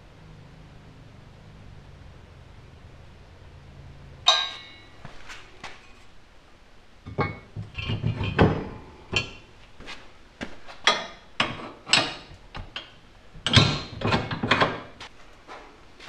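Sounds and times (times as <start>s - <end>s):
steel clanking on steel: 4.2s - 5.0s, 7.1s - 9.5s.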